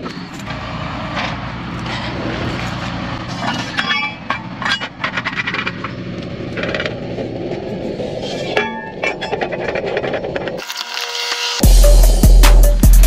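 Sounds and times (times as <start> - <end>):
truck engine running: 0.0 - 8.4
metal clanks and rattles: 0.0 - 10.6.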